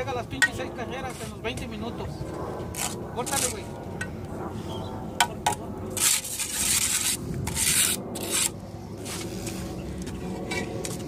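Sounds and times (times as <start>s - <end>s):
trowel scraping wet mortar: 2.8s - 3.6s, 5.9s - 9.6s.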